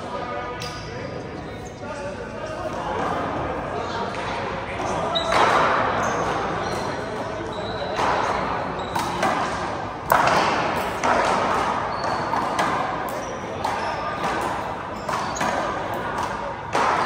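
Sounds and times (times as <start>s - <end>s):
sneaker squeaks on court floor: 4.8s - 9.8s, 10.4s - 17.0s.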